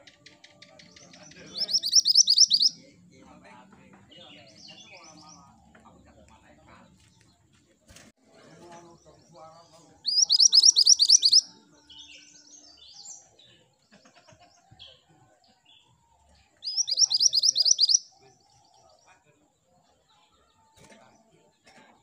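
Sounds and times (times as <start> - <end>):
soft bird chirps: 0.0 - 2.9, 8.8 - 13.9, 15.7 - 19.2
bird singing quick high notes: 1.6 - 2.7, 10.1 - 11.4, 16.7 - 18.0.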